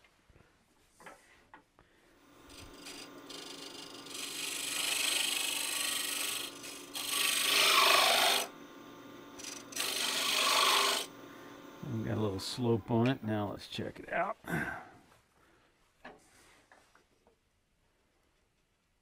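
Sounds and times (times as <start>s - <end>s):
lathe humming: 2.2s - 13.2s
scraper cutting spinning wood: 2.3s - 11.8s.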